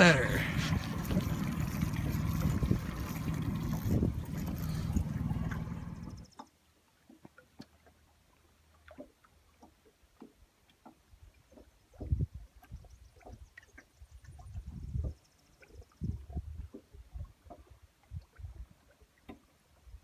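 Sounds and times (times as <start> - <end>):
rushing water: 0.0 - 6.2
low rumble of boat: 0.0 - 20.0.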